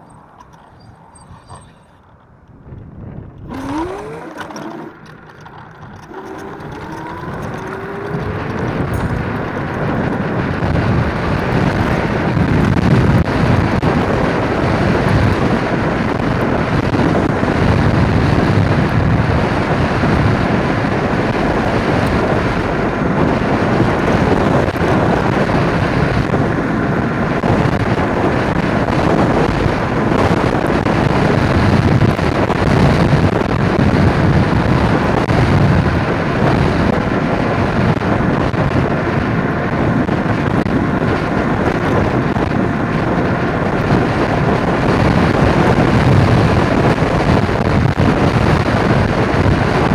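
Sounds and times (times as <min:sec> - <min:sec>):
faint rising whine: 0:00.0 - 0:10.8
wind rushing over microphone: 0:00.0 - 0:49.9.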